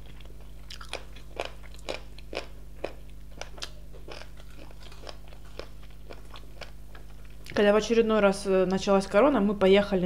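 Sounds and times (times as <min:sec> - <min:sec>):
crunching and chewing fried chicken: 0:00.0 - 0:07.6
steady low hum: 0:00.0 - 0:10.0.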